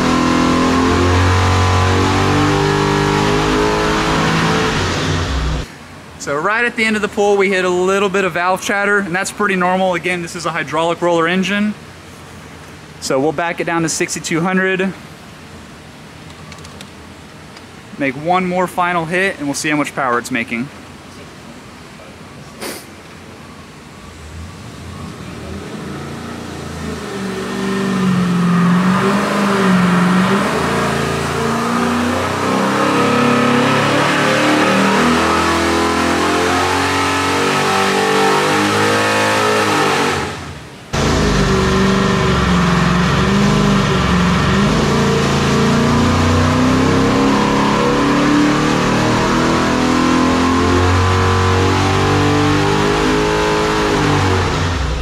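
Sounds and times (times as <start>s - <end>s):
engine running at full throttle: 0.0s - 5.7s, 25.2s - 55.0s.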